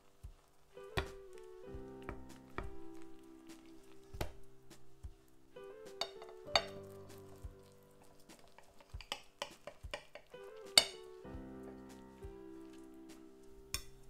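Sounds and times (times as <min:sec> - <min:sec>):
soft background music: 0:00.0 - 0:14.0
knife and fork clinking on plate: 0:06.0 - 0:06.8.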